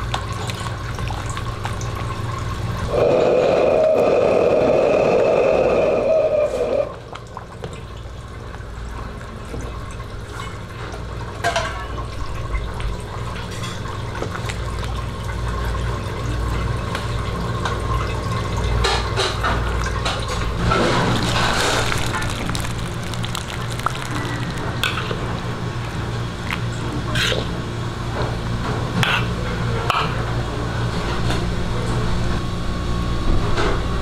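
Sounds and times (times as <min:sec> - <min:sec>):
gas burner rumbling: 0:00.0 - 0:07.6, 0:12.4 - 0:34.0
soup bubbling in a wok: 0:19.6 - 0:27.4.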